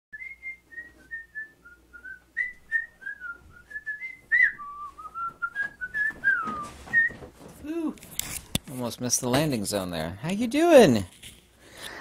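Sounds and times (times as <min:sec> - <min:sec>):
man whistling a tune: 0:00.2 - 0:07.2.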